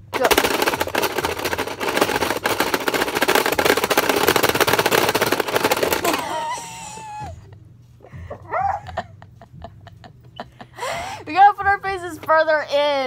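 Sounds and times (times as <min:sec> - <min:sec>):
person crying out: 0:06.1 - 0:07.4, 0:08.3 - 0:09.0.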